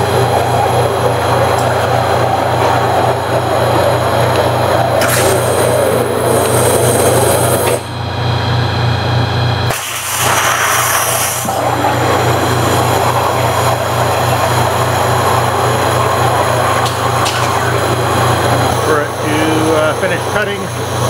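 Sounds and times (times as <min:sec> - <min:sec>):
low machine hum: 0:00.0 - 0:21.0
waterjet rushing hiss: 0:09.7 - 0:21.0.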